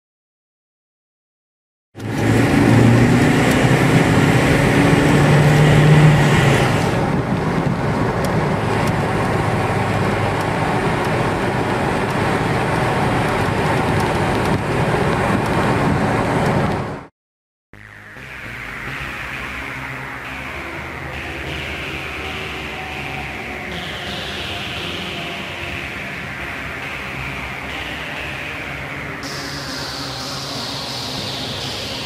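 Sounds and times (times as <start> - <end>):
car engine running: 2.0 - 17.0, 17.8 - 32.0
tyre and wind noise: 3.0 - 17.0.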